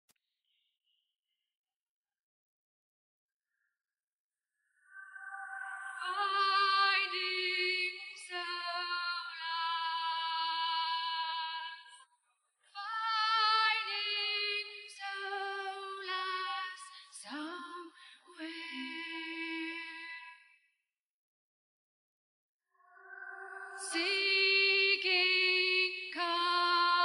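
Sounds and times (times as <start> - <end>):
woman singing with vibrato: 5.6 - 12.0, 12.8 - 20.4, 23.5 - 27.0.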